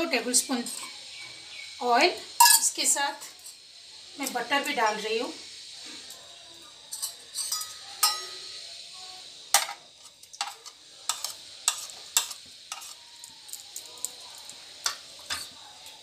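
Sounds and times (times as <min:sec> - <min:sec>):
butter sizzling in hot oil: 0:00.0 - 0:16.0
spoon tapping and scraping pan: 0:06.9 - 0:08.4, 0:09.5 - 0:13.6, 0:14.4 - 0:15.6.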